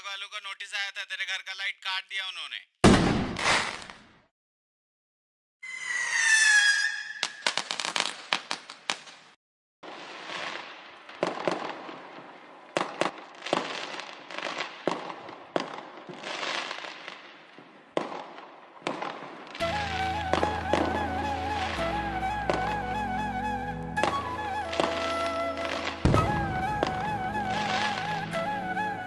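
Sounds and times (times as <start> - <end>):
firework bangs: 2.8 - 4.0, 7.1 - 21.0, 24.0 - 28.3
firecracker cracks: 2.8 - 4.1, 7.2 - 9.4, 24.8 - 28.4
fireworks crackling: 3.4 - 4.0, 7.2 - 23.2, 24.0 - 29.0
whistling firework: 5.6 - 9.1, 18.0 - 29.0.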